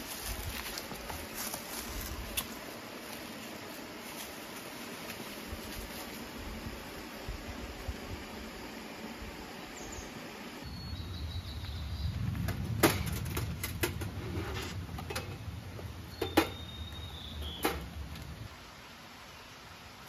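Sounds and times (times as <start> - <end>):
camp gear clicking and knocking: 12.4 - 14.2.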